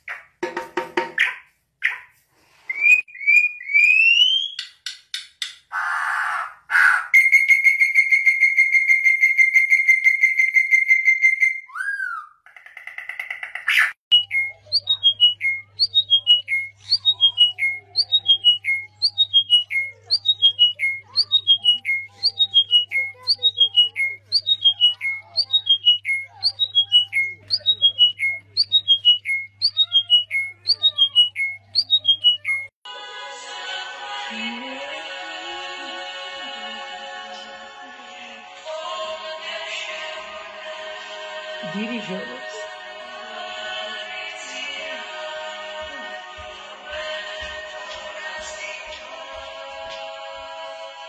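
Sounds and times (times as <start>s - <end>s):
songbird rasping and whistling: 1.2s - 5.0s, 5.7s - 32.8s.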